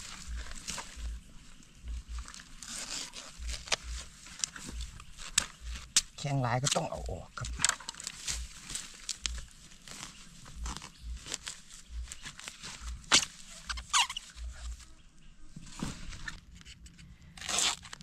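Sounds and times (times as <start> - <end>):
dry leaves crunching: 0.0 - 16.4
sharp cracks of bamboo: 2.2 - 14.3, 16.2 - 18.0
knife cutting bamboo: 2.6 - 9.3.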